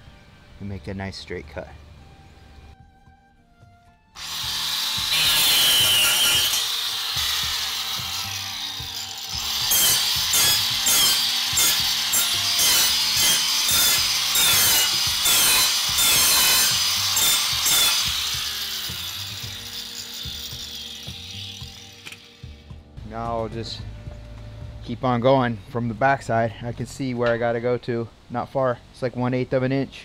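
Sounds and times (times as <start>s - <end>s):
angle grinder cutting metal: 4.2s - 22.8s.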